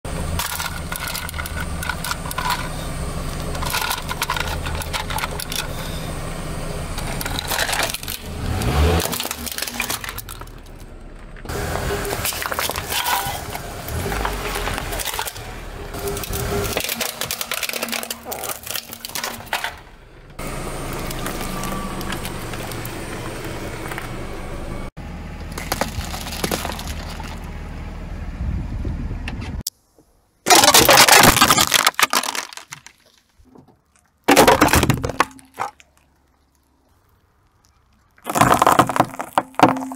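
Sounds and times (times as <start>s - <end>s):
car engine idling and revving: 0.0s - 29.7s
plastic crunching under tyre: 0.2s - 6.2s, 6.9s - 24.2s, 25.4s - 27.6s, 30.5s - 39.9s
eggs and balloons cracking: 30.5s - 39.9s
tyre crushing tomato: 30.5s - 39.9s.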